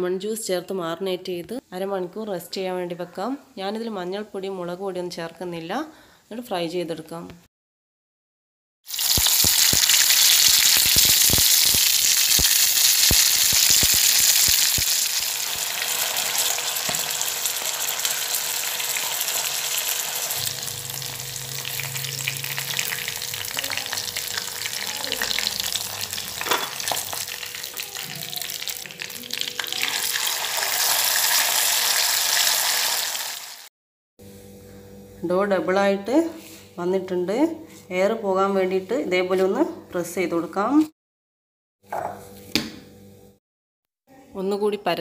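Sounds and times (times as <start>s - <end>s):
chicken sizzling in hot oil: 8.8s - 33.7s.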